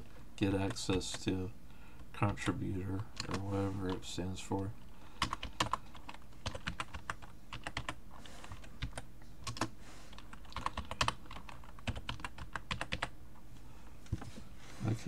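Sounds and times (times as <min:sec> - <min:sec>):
keyboard typing clicks: 0:05.2 - 0:13.1.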